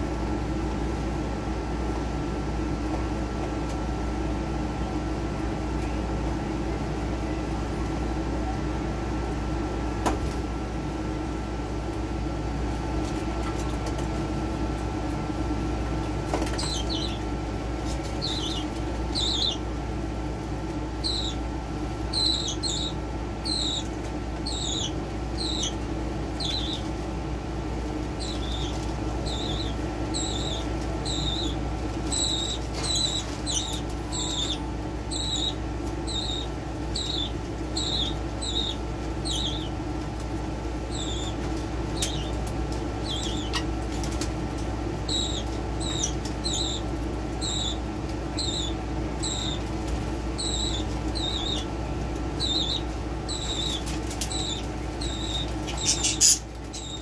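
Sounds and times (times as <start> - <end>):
steady low hum: 0.0 - 57.0
budgerigar chirping: 16.6 - 17.2, 18.2 - 19.6, 21.0 - 21.4, 22.1 - 25.8, 26.4 - 26.8, 28.2 - 39.7, 40.9 - 41.4, 42.0 - 42.3, 43.0 - 43.7, 45.1 - 46.8, 47.4 - 49.6, 50.4 - 51.7, 52.4 - 57.0.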